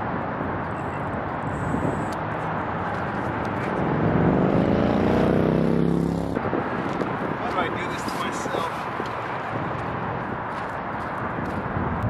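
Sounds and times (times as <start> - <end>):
highway traffic noise: 0.0 - 12.0
truck engine passing: 1.0 - 6.7.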